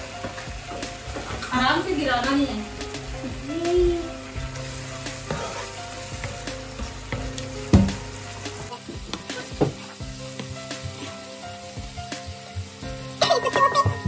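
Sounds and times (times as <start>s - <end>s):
masala sizzling in hot oil: 0.0s - 14.0s
spatula scraping a wok: 5.0s - 7.0s.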